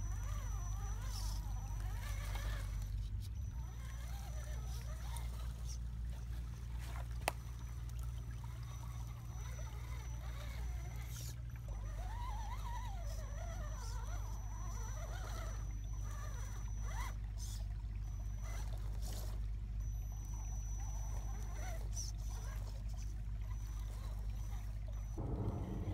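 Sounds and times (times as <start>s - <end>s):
faint high whine: 0.0s - 25.9s
creek trickling over stones: 1.0s - 17.6s
steady low rumble: 25.2s - 25.9s.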